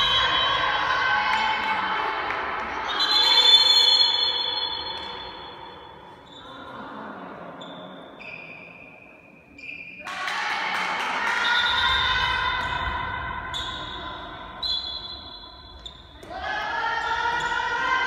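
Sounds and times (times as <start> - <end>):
shoe squeaks on floor: 7.6 - 10.0, 13.5 - 16.2.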